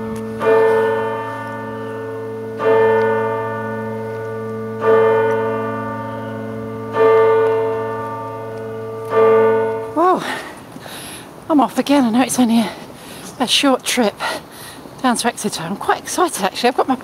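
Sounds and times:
church bell tolling: 0.0 - 10.4.

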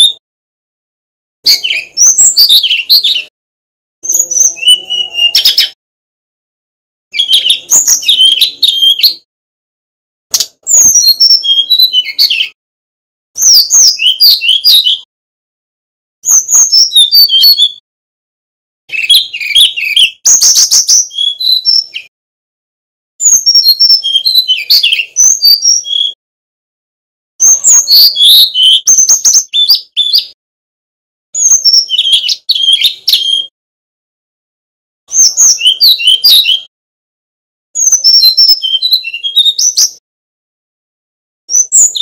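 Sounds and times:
bird singing warbled phrases: 0.0 - 0.2, 1.4 - 3.3, 4.0 - 5.8, 7.1 - 9.3, 10.3 - 12.6, 13.4 - 15.1, 16.2 - 17.8, 18.9 - 22.1, 23.2 - 26.2, 27.4 - 30.4, 31.4 - 33.5, 35.1 - 36.7, 37.8 - 40.0, 41.5 - 42.0.

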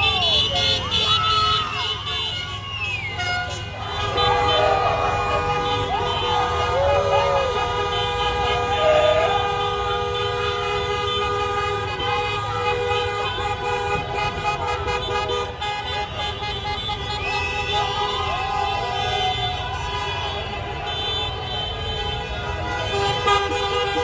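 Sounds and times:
traffic rumble: 0.0 - 24.0
people shouting and cheering: 3.9 - 9.7, 17.4 - 20.6
car horns honking: 7.4 - 17.8.

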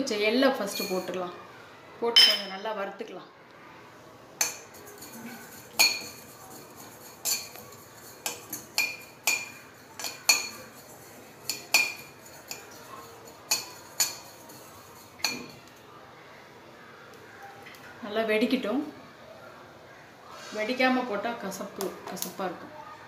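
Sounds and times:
seeds dry-roasting: 4.4 - 15.6
spoon scraping metal pan: 4.4 - 15.7.

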